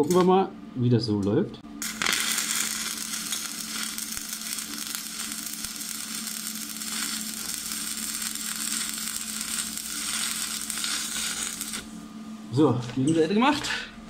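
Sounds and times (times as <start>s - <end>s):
welding arc crackling sizzle: 1.8s - 12.0s.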